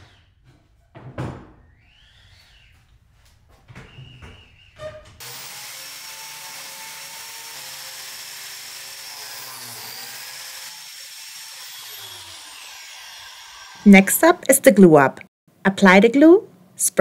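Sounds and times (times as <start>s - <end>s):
biscuit jointer motor whining: 5.2s - 13.9s.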